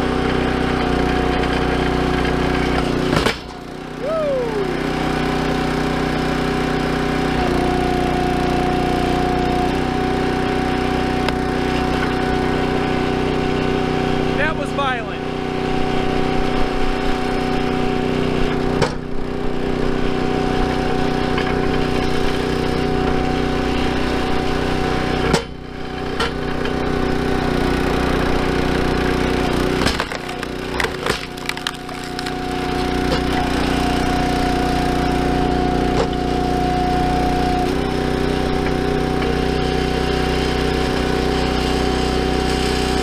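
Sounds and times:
log splitter engine running: 0.0s - 43.0s
wood cracking and splintering: 28.2s - 36.3s.

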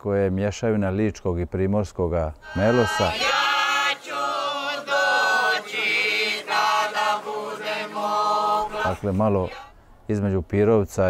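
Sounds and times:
women singing unaccompanied: 2.4s - 9.8s.

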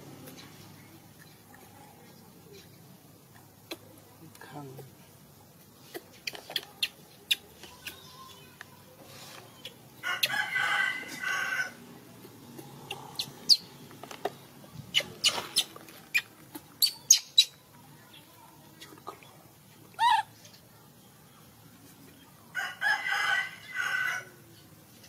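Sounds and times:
animal squeaks and chirps: 14.9s - 17.6s.

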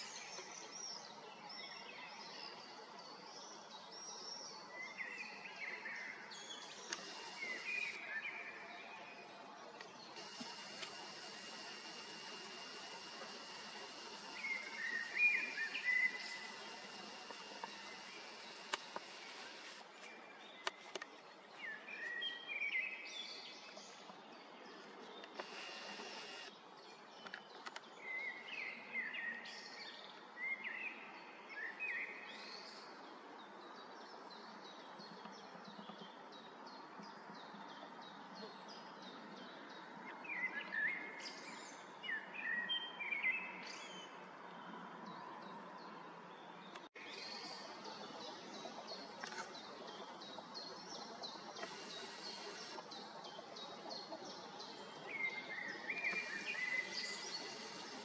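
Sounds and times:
birds singing: 4.6s - 9.1s, 9.8s - 20.8s, 24.7s - 26.5s, 46.6s - 58.0s
steady background hiss: 9.8s - 20.1s, 47.1s - 58.0s.

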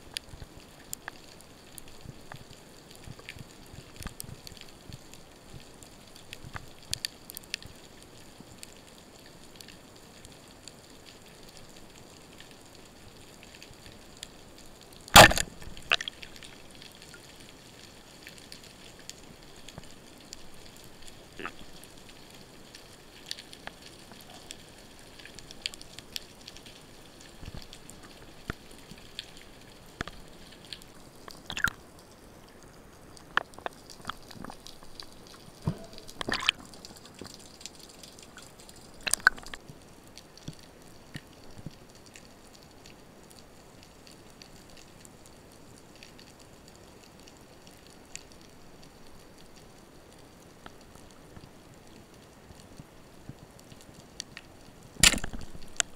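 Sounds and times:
faint underwater clicks and crackles: 0.0s - 55.9s
speargun firing crack: 15.2s - 15.6s, 55.0s - 55.4s.

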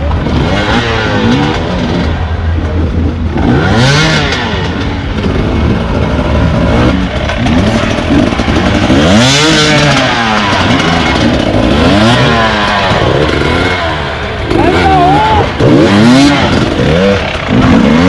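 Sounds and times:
dirt bike engines revving: 0.0s - 18.0s.

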